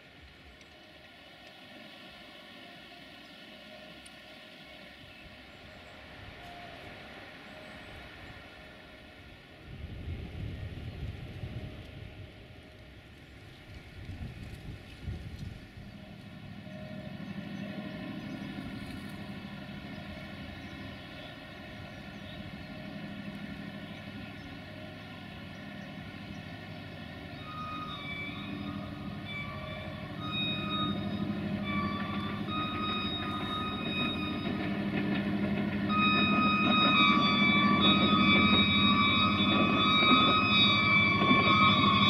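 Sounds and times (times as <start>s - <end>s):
train engine and wheels: 0.0s - 42.0s
locomotive horn blasts: 15.4s - 42.0s.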